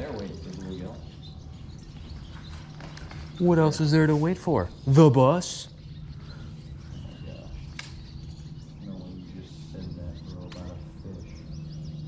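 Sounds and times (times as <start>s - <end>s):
birds chirping faintly: 0.0s - 12.0s
steady low hum: 0.0s - 12.0s
sharp clicks: 7.7s - 8.1s, 10.4s - 10.7s.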